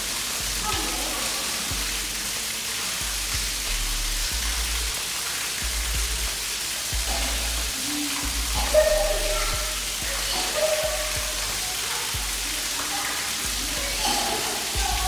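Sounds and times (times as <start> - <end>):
water splashing onto a hard floor: 0.0 - 15.0.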